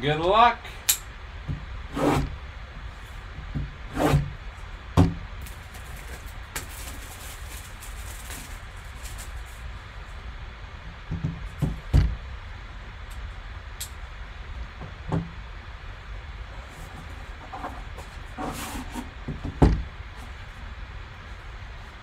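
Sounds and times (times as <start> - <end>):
plastic shrink-wrap crinkling: 5.4 - 9.7.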